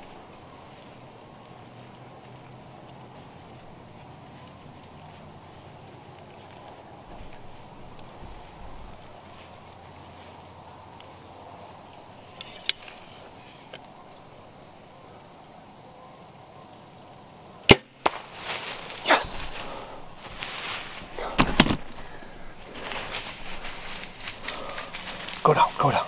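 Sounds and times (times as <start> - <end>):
rustling through tall grass: 0.0 - 14.8, 18.0 - 26.0
bowstring crack: 12.3 - 13.8, 17.7 - 19.6
arrow striking animal: 17.7 - 18.3, 21.3 - 21.9.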